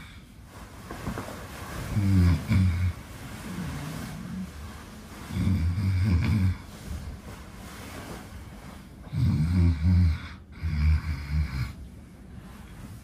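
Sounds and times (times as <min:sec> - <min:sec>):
man fake snoring: 0:01.9 - 0:04.3, 0:05.3 - 0:06.7, 0:09.1 - 0:11.8.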